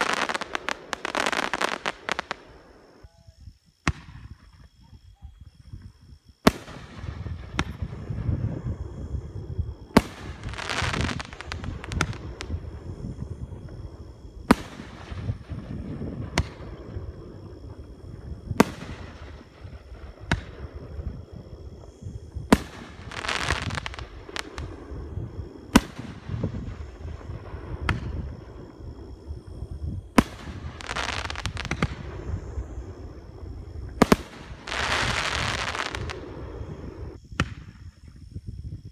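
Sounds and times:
firework crackling: 0.0 - 4.3, 6.4 - 37.9.

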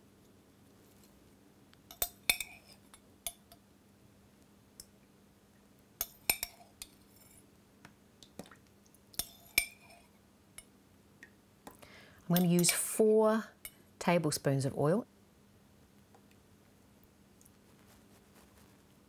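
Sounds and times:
metal spoon clinking on ceramic jug: 1.9 - 3.5, 6.0 - 7.4, 9.2 - 10.1, 12.3 - 12.9.

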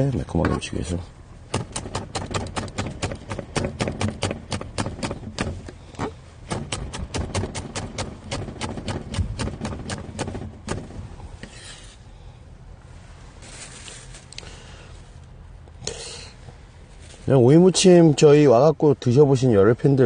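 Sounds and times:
knife chopping on wooden board: 1.5 - 10.9.

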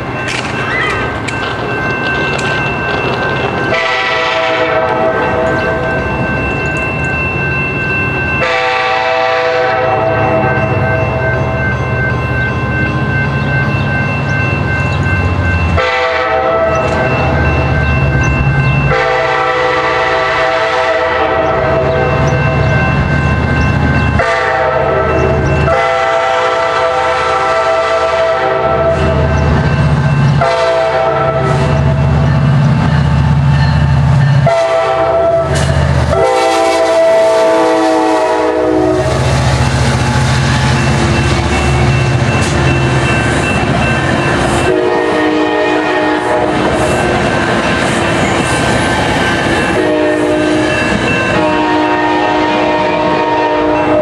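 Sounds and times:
wheels rattling over rails: 0.0 - 4.4
train horn blasts: 3.6 - 5.8, 8.4 - 11.6, 15.8 - 17.2, 18.8 - 22.7, 24.2 - 29.3, 30.4 - 32.0, 34.4 - 40.4, 44.6 - 46.7, 49.6 - 54.0.

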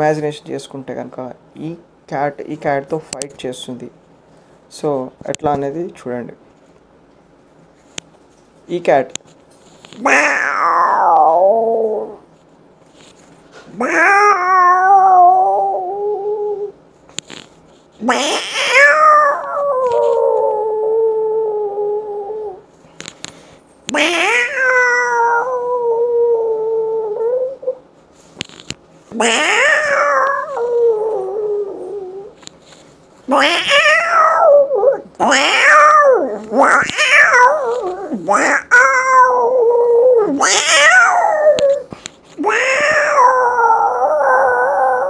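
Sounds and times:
man imitating cat yowls: 13.8 - 16.7, 18.1 - 22.6, 23.9 - 27.8, 29.2 - 32.4, 33.3 - 45.0.

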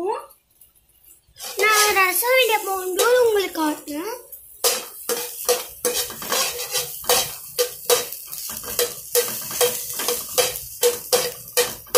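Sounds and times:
spoon scraping a frying pan: 1.3 - 3.3, 4.6 - 11.9.

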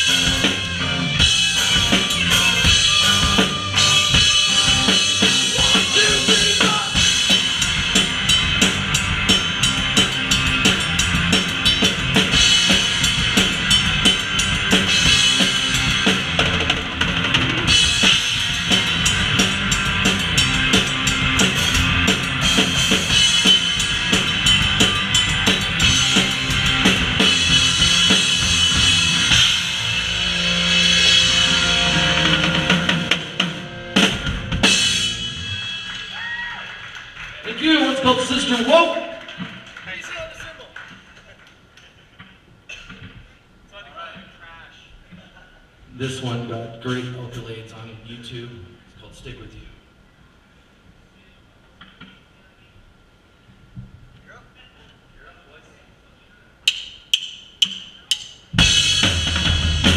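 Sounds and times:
rock band playing live: 0.0 - 36.4, 58.5 - 59.9
cymbals: 0.0 - 36.6, 56.7 - 59.9
drums driving beat: 0.0 - 36.6, 56.7 - 59.9.

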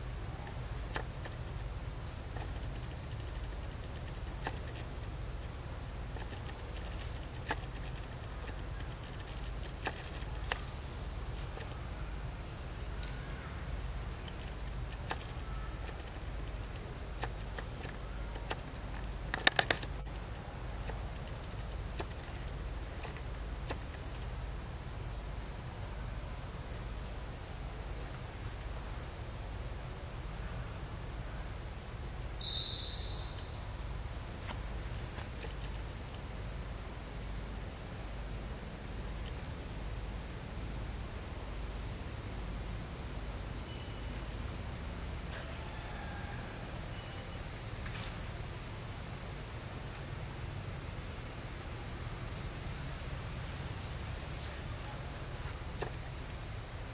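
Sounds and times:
sharp clicks: 14.3 - 20.1
insect chorus shrilling: 32.4 - 34.5.

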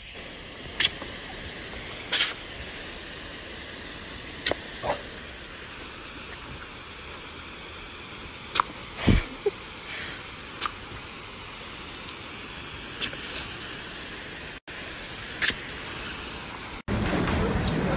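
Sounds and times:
hose nozzle spraying water: 0.0 - 16.9
short sharp snaps: 8.6 - 8.8.

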